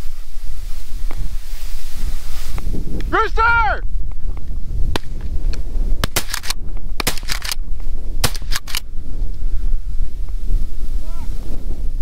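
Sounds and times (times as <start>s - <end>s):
wind rumbling on microphone: 0.0s - 12.0s
shotgun shots: 6.0s - 7.6s, 8.2s - 8.8s.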